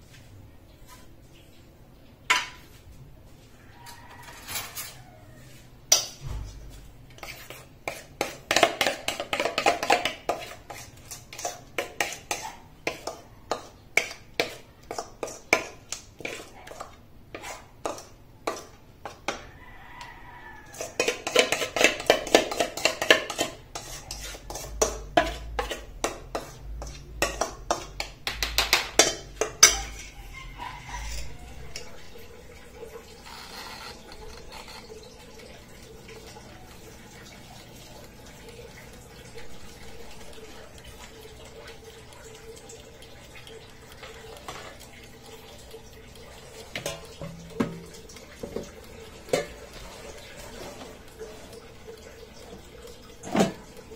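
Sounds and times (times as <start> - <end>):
utensil scraping metal bowl: 7.1 - 19.3, 20.4 - 52.5.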